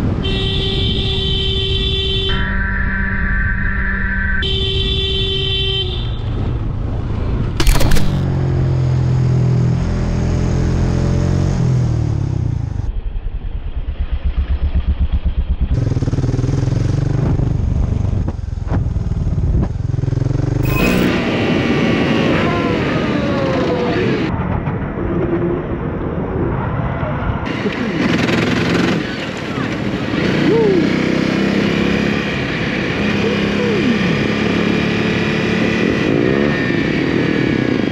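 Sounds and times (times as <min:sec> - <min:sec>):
road and wind noise: 0:00.0 - 0:37.9
motorcycle engines running: 0:14.0 - 0:24.3, 0:27.5 - 0:37.9.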